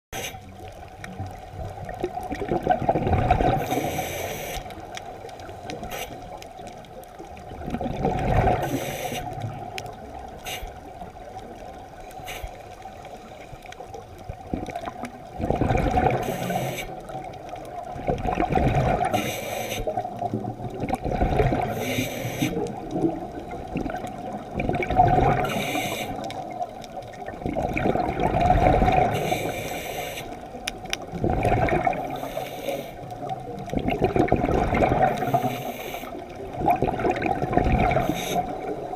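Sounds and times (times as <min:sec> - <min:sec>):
short hiss of breathing: 0:00.2 - 0:00.5, 0:03.6 - 0:04.8, 0:05.8 - 0:06.3, 0:08.6 - 0:09.3, 0:10.4 - 0:10.8, 0:12.1 - 0:13.2, 0:16.2 - 0:17.0, 0:19.1 - 0:20.0, 0:21.7 - 0:22.6, 0:25.4 - 0:26.3, 0:29.1 - 0:30.4, 0:32.2 - 0:33.1, 0:35.2 - 0:36.2, 0:38.0 - 0:38.6
exhaled bubbles gurgling underwater: 0:00.2 - 0:38.9.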